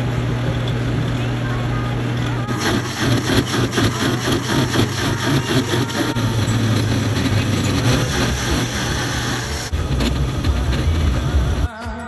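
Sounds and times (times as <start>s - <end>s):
blender motor humming: 2.3s - 11.6s.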